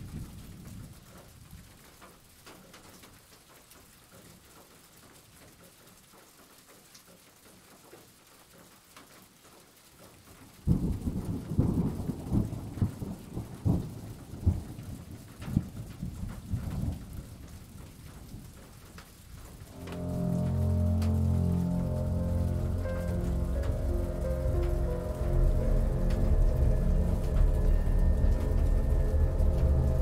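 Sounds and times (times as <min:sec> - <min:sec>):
light rain hissing: 0:00.0 - 0:30.0
low thunder rumbling: 0:10.7 - 0:18.6, 0:19.6 - 0:30.0
thunder cracks: 0:19.7 - 0:30.0.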